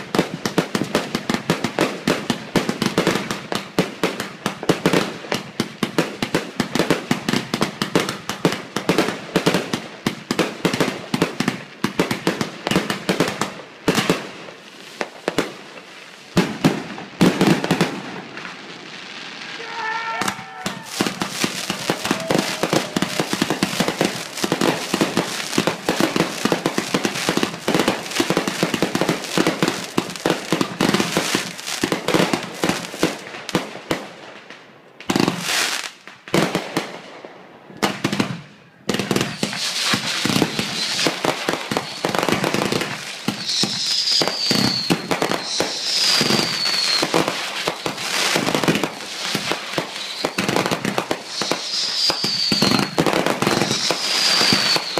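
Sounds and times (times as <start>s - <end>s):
fireworks crackling and popping: 0.0s - 54.9s
falling firework whistles: 18.9s - 26.0s, 39.2s - 54.9s.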